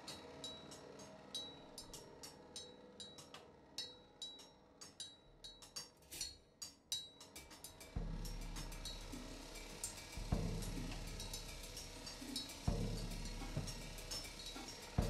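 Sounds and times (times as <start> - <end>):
metallic taps and clicks: 4.3 - 7.7.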